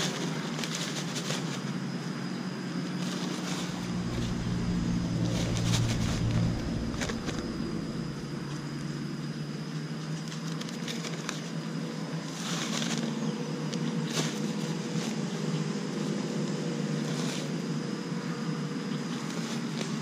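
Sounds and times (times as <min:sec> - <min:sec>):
steady low hum: 0:03.1 - 0:09.9.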